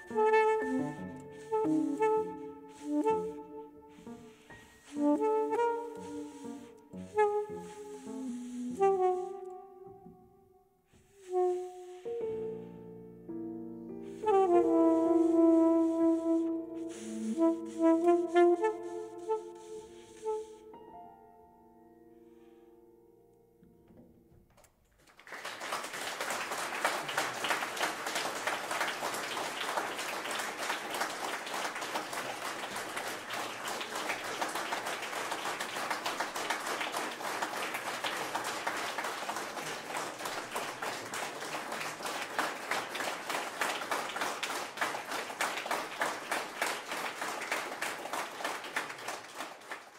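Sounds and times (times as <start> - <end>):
audience applauding: 0.0 - 3.4, 4.0 - 9.2, 24.9 - 49.9.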